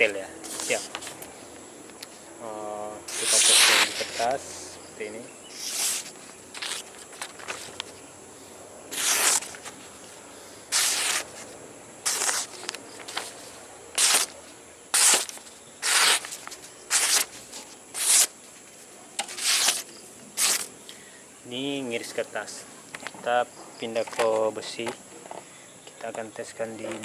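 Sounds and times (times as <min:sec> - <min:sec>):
blade slicing through paper: 0:03.1 - 0:04.2, 0:05.6 - 0:07.7, 0:08.9 - 0:09.8, 0:10.7 - 0:13.3, 0:13.9 - 0:18.3, 0:19.2 - 0:20.7.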